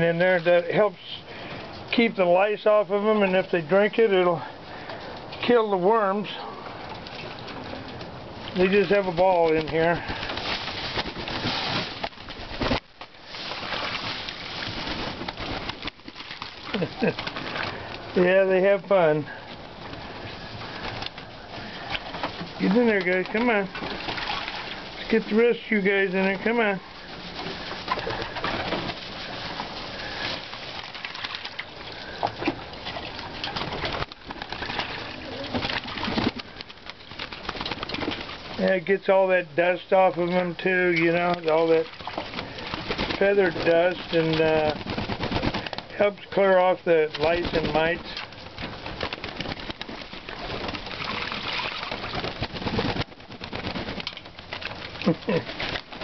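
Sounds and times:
pigeons splashing in water: 3.0 - 56.0
wings flapping: 4.3 - 56.0
pigeons cooing: 31.6 - 38.5.

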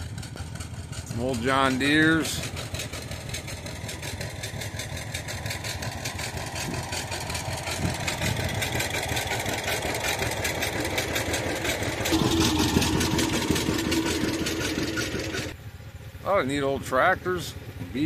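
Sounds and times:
small engine running: 0.0 - 18.0
steady humming note: 12.1 - 15.6.

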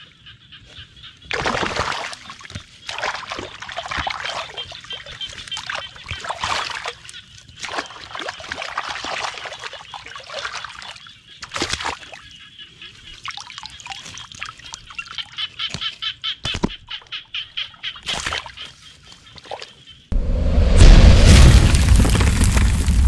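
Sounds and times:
hands splashing in shallow water: 1.3 - 12.2, 18.0 - 19.8
sharp splashes and knocks: 1.3 - 12.2, 18.0 - 18.7, 20.6 - 23.0.

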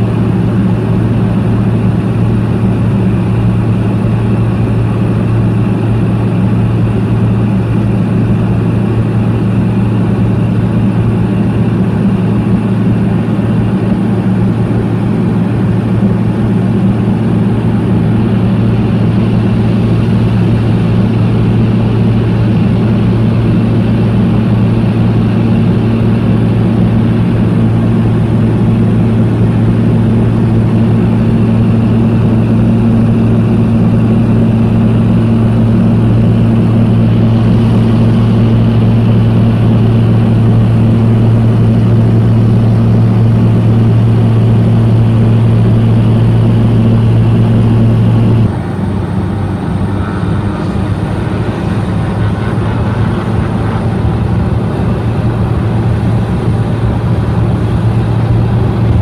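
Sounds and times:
propeller aircraft cabin drone: 0.0 - 59.0
turboprop engine noise: 0.0 - 59.0
faint high whine: 18.2 - 48.6.

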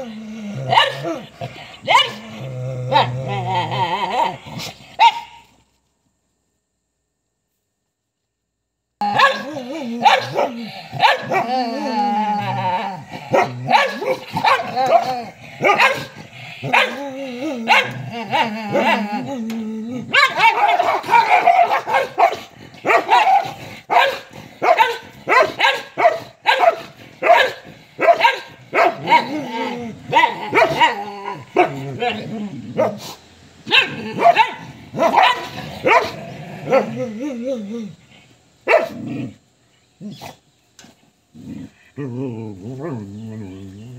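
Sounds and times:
dogs growling and snarling: 0.0 - 5.0, 9.0 - 25.6, 26.3 - 39.4, 41.3 - 43.9
dogs barking: 0.7 - 1.2, 1.8 - 2.2, 5.0 - 5.4, 9.0 - 11.6, 13.2 - 19.2, 20.1 - 37.0, 38.6 - 39.0.

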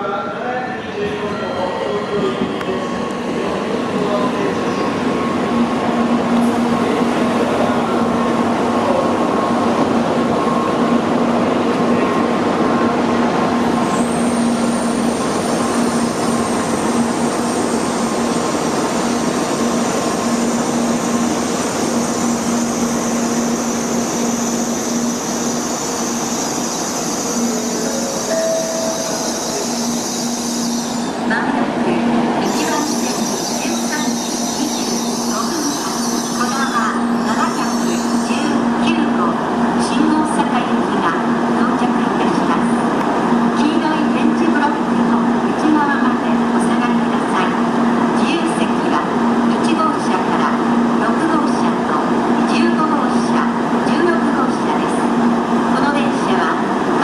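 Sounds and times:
train running noise: 0.0 - 57.0
high whine: 26.9 - 31.2.

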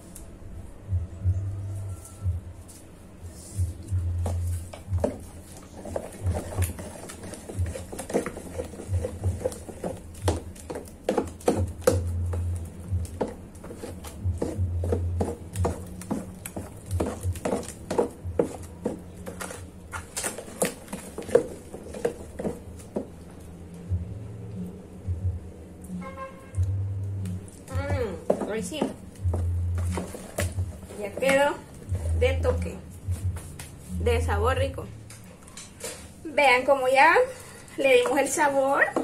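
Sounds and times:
plastic spoon scraping dough: 3.3 - 23.1, 28.2 - 32.6.

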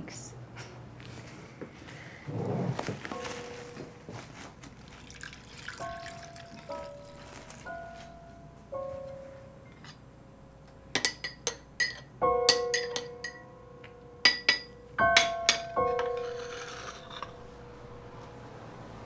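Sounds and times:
teaspoon clinking in ceramic cup: 5.1 - 7.2.

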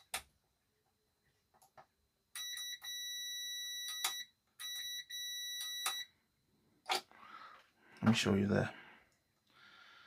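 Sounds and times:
multimeter continuity beep: 2.3 - 6.2.

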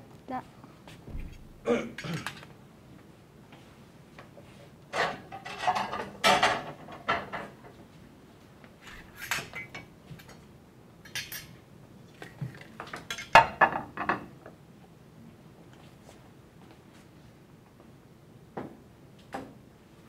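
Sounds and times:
dishes and cutlery clattering: 4.9 - 7.6, 9.0 - 10.4, 11.0 - 11.6, 12.6 - 14.3.

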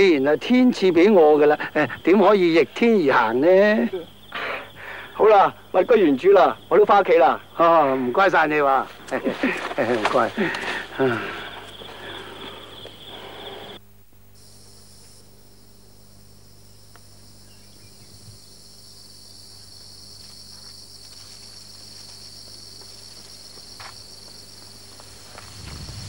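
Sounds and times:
insects chirring: 0.0 - 26.0.

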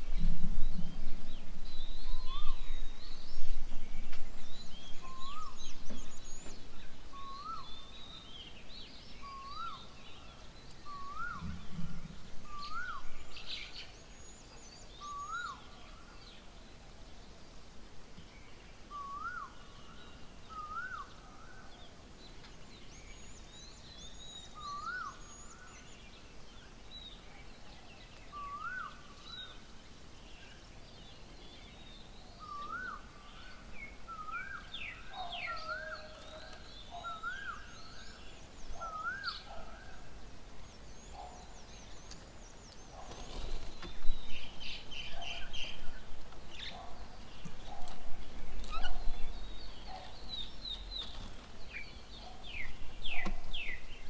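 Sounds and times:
birds chirping: 0.0 - 17.4, 18.1 - 54.0.

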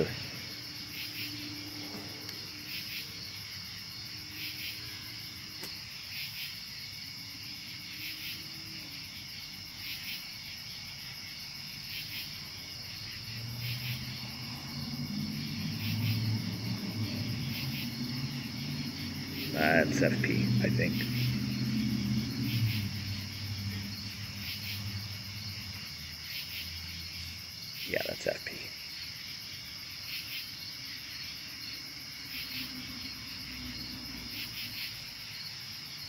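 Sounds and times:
night insects chirping: 0.0 - 36.0
low rumble: 14.6 - 25.8.

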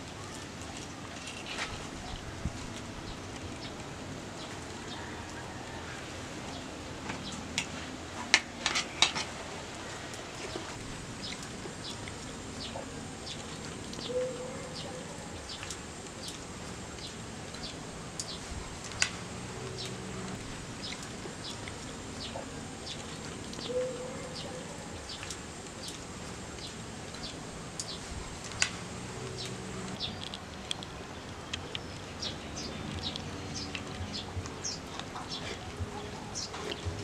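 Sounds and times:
birds chirping: 0.0 - 37.0
lower bird calls: 10.4 - 16.4, 17.0 - 26.0.

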